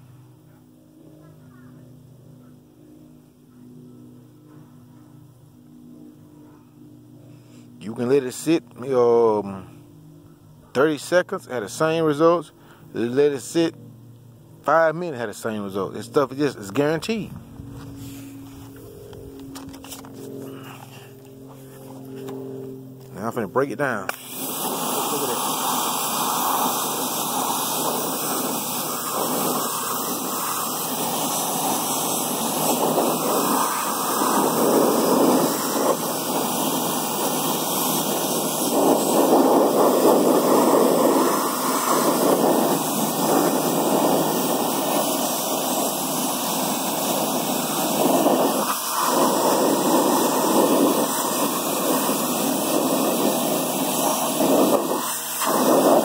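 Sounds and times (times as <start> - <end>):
pressure washer spraying water: 24.1 - 56.0.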